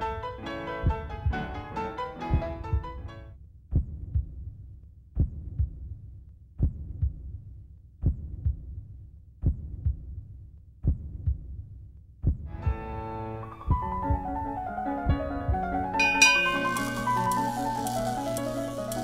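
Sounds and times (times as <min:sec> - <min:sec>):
piano music: 0:00.0 - 0:03.0, 0:12.6 - 0:19.0
low double thumps: 0:13.6 - 0:14.5.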